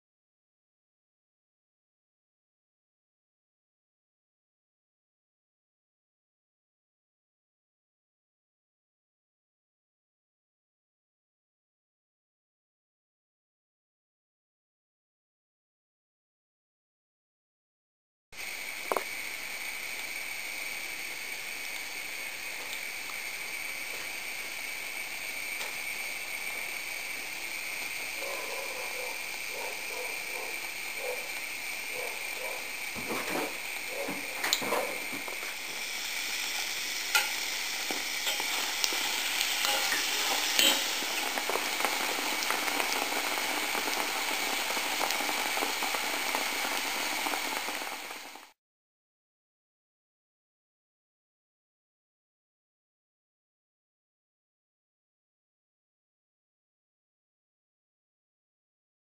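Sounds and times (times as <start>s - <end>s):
oil sizzling with pops: 18.4s - 48.6s.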